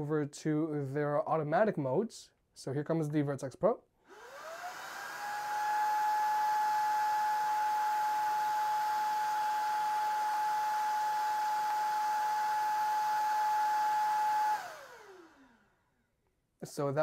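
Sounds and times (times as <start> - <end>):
stick vacuum motor whine: 4.1 - 15.7.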